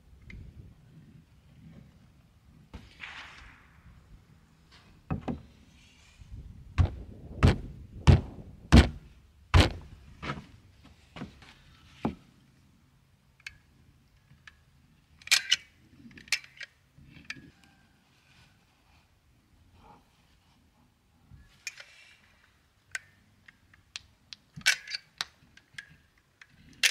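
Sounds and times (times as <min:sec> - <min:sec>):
heavy wooden knocks: 0:06.8 - 0:09.0.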